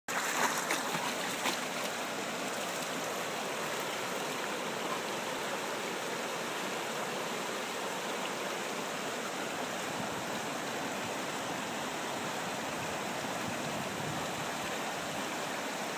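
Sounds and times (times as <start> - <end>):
dog wading through water: 0.1 - 3.0
stream rushing over stones: 0.1 - 15.9.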